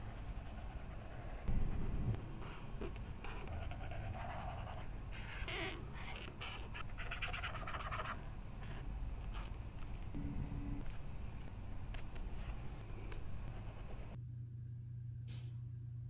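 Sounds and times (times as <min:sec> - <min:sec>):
marker scratching on paper: 0:00.0 - 0:01.8, 0:02.4 - 0:10.0, 0:11.9 - 0:14.2.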